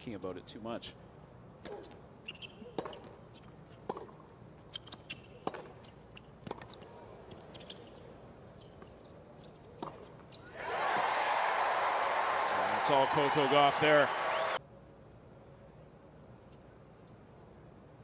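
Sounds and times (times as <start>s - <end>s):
tennis ball struck by rackets: 2.8s - 3.2s, 3.8s - 4.2s, 5.4s - 5.8s.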